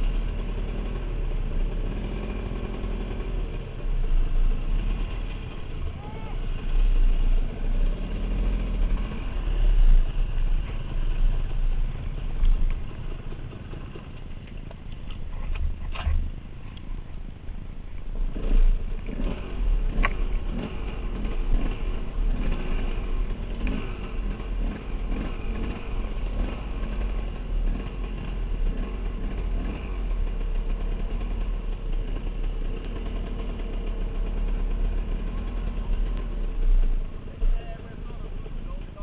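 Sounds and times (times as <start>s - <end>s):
dirt bike engine revving: 0.0s - 14.2s, 18.2s - 37.5s.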